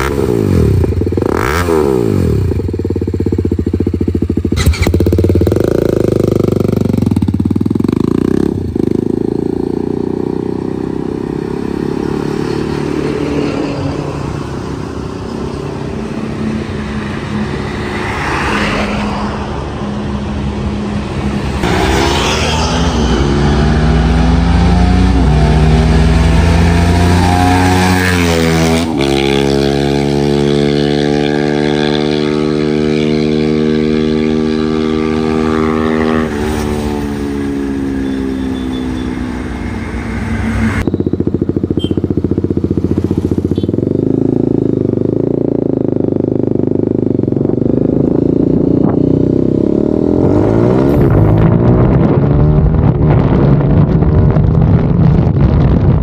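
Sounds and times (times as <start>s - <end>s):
single-cylinder motorcycle engine revving: 0.0s - 17.9s, 21.6s - 52.6s
rushing noise: 13.5s - 29.0s.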